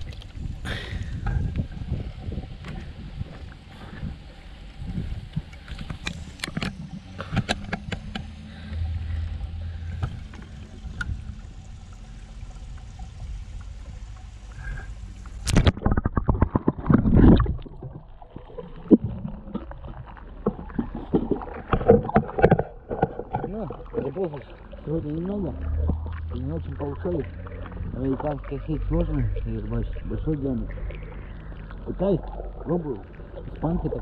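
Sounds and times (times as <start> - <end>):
water splashing into river: 12.7 - 34.0
water sloshing in bucket: 15.4 - 34.0.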